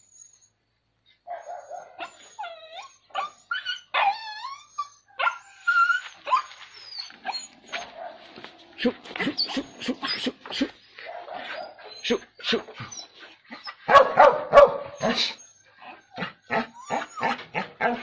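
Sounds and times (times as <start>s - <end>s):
dog yelping and whining: 1.3s - 8.1s, 9.2s - 18.0s.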